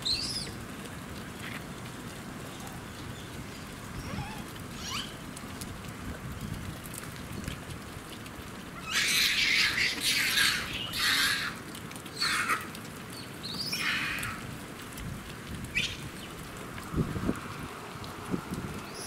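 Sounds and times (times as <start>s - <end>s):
monkeys screaming: 4.0s - 5.2s, 8.8s - 11.6s, 12.2s - 12.7s, 13.7s - 14.4s.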